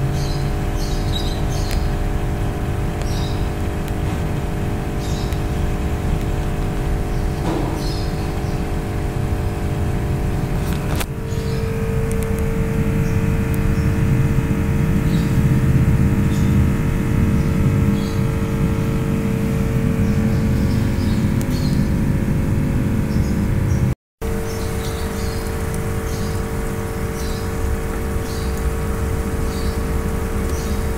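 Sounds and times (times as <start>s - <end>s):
constant tone: 0.0s - 30.9s
machine hum: 0.0s - 30.9s
low rumble: 1.9s - 30.9s.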